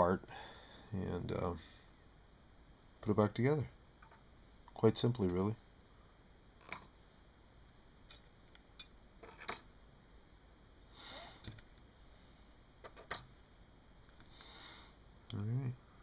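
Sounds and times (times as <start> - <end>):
soft sniffs: 10.9 - 11.5, 14.3 - 15.0.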